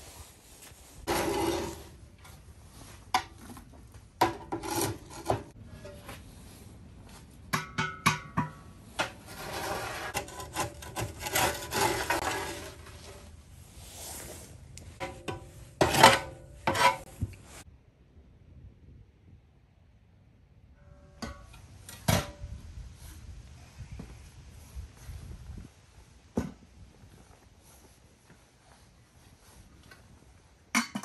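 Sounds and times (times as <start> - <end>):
rubbing and scraping of objects: 0.0 - 7.4, 8.6 - 17.7.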